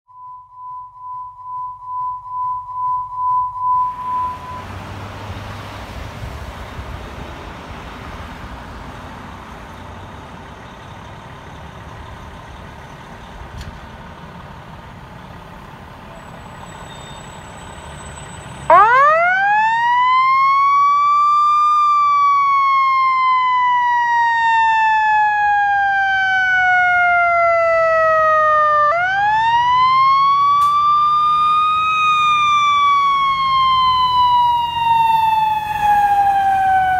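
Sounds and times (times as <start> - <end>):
pulsing beep tone: 0.1 - 4.7
mechanical siren wailing: 0.2 - 4.8, 18.6 - 36.9
fire engine diesel engine: 3.8 - 36.9.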